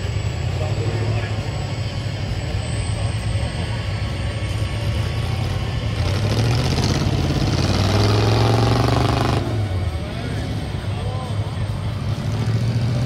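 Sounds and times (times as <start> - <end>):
truck engine revving under load: 4.8 - 10.9, 11.7 - 13.0.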